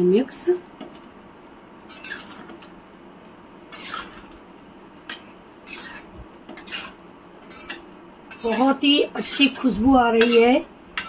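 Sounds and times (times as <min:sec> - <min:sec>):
spoon scraping pan: 0:01.9 - 0:02.6, 0:03.7 - 0:04.4, 0:05.0 - 0:11.0.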